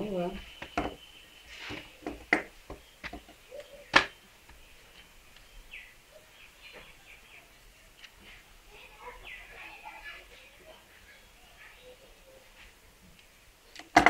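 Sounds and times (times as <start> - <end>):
faint bird chirps: 0.0 - 13.9.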